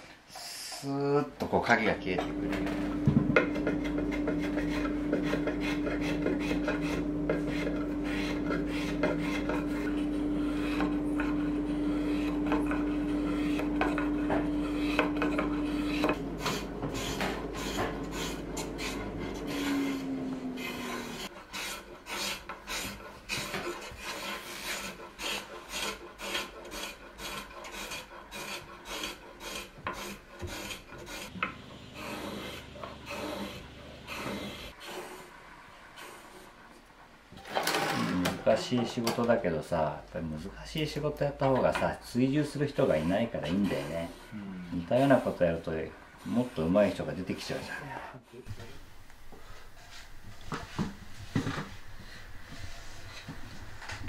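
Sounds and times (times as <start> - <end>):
hand plane shaving wood: 2.3 - 31.4, 32.0 - 35.4, 42.4 - 47.6.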